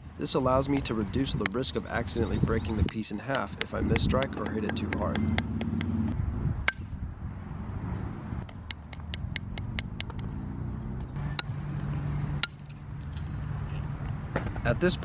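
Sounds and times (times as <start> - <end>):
antler striking stone clinks: 0.7 - 6.0, 8.5 - 10.4, 12.4 - 14.9.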